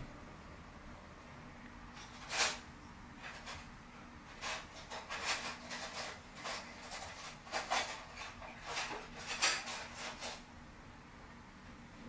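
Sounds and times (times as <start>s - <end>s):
faint low hum: 0.0s - 12.0s
rustles and light knocks: 2.0s - 10.5s.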